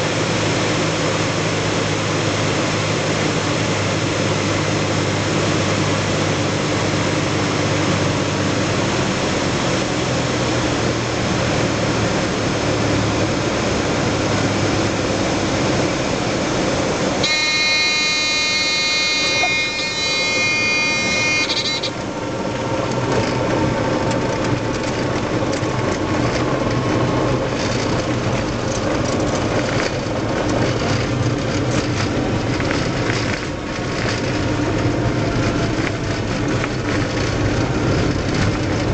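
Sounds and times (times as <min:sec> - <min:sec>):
propeller airplane engine droning: 0:00.0 - 0:38.9
stall warning horn: 0:17.2 - 0:22.6
wheels rolling on runway: 0:19.2 - 0:38.9.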